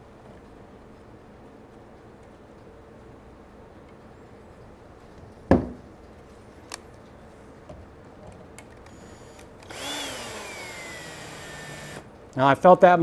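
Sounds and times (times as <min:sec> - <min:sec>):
power drill whining: 0:08.9 - 0:12.0.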